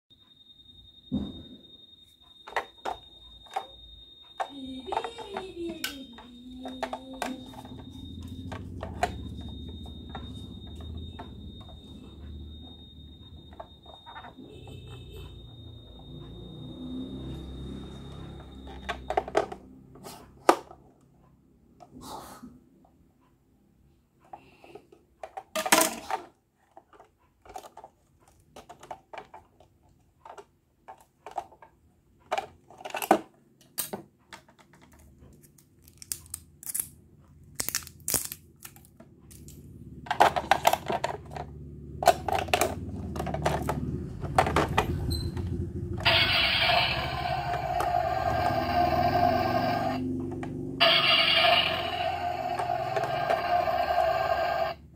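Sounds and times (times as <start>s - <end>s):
toy electronic sound: 2.1s - 19.6s, 44.6s - 54.9s.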